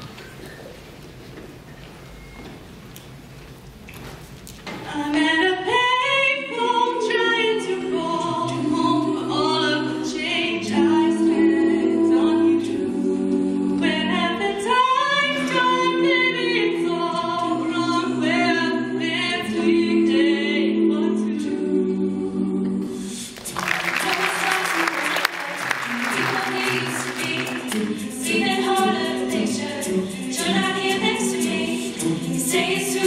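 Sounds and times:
woman singing into a microphone: 4.8s - 12.8s
choir holding chords: 5.2s - 33.0s.

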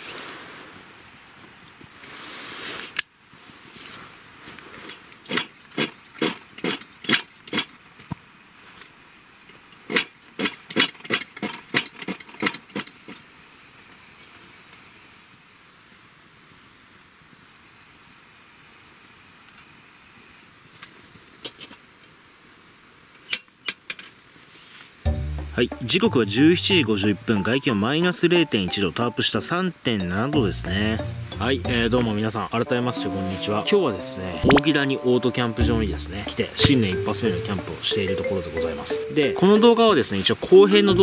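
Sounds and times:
faint steady hiss: 0.0s - 41.0s.

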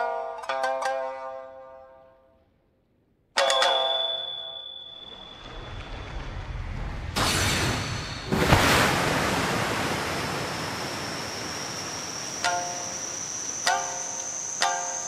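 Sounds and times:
thin high rising tone: 4.5s - 6.9s
sharp hit: 5.1s - 13.0s
low rumble into rushing noise: 5.2s - 12.4s.

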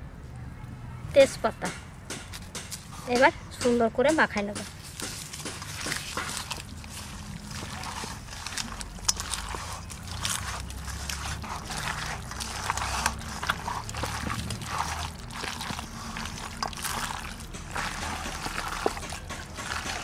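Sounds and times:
hands squelching raw chicken: 4.6s - 20.0s.

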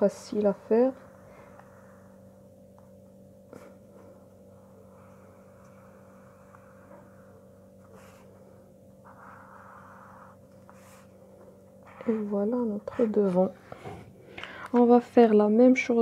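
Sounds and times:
low electrical hum: 0.0s - 16.0s
marker scratching on paper: 5.9s - 11.2s, 11.8s - 13.5s.

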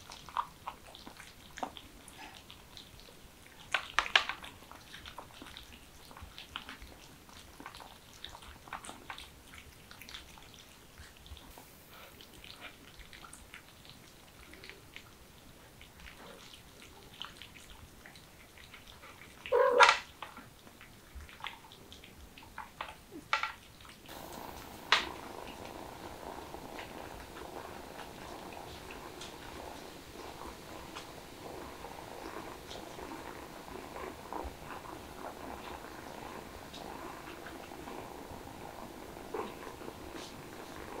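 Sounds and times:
cats chewing and licking: 0.0s - 41.0s.

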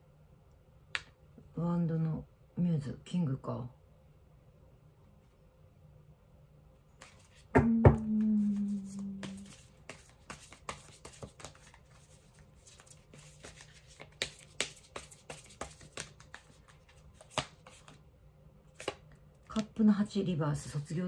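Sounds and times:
cards being shuffled: 7.0s - 7.5s, 8.4s - 18.0s, 18.7s - 19.7s.

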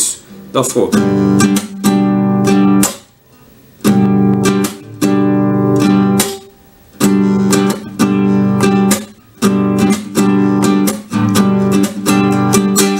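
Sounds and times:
acoustic guitar strumming: 0.0s - 12.9s.

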